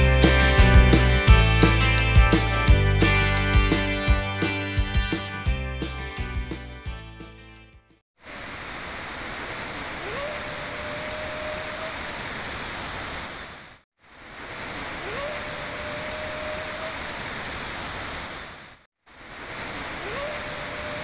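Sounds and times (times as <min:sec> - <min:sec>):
river rushing: 0:08.2 - 0:21.0
drawn-out tonal call: 0:10.0 - 0:12.1, 0:15.0 - 0:17.1, 0:19.9 - 0:21.0.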